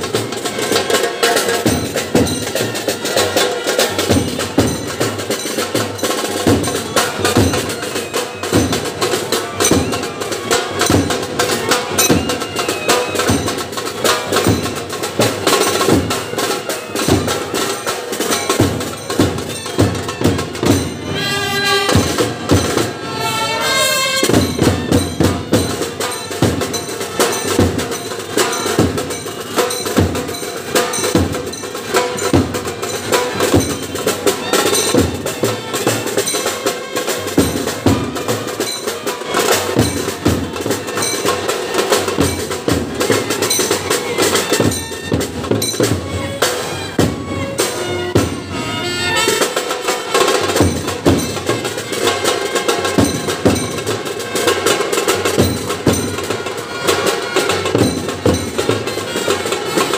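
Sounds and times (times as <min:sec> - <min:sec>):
drums beating rhythm: 0:00.0 - 0:59.9
trumpets clarinets and saxophones: 0:20.9 - 0:24.6, 0:48.3 - 0:50.6, 0:58.8 - 0:59.9.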